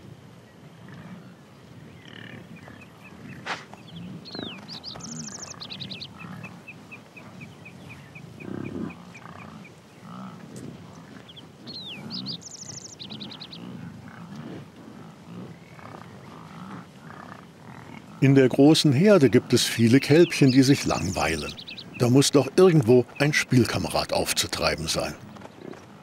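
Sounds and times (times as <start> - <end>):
bird singing sweep and trills: 1.2 - 14.3, 15.0 - 25.9
bison grunting: 13.1 - 25.3.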